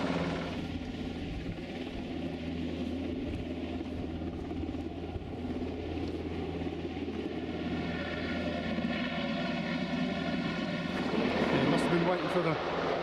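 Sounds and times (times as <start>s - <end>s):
helicopter rotor and engine drone: 0.0s - 13.0s
helicopter whine: 0.0s - 13.0s.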